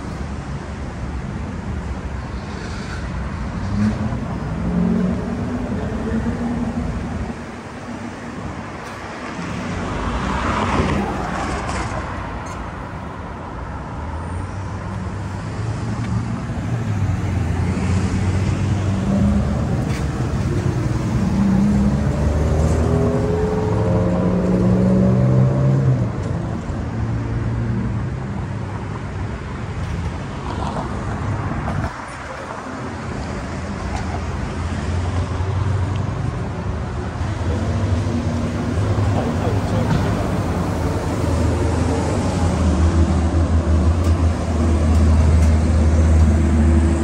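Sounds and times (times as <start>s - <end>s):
car passing: 3.6s - 13.5s.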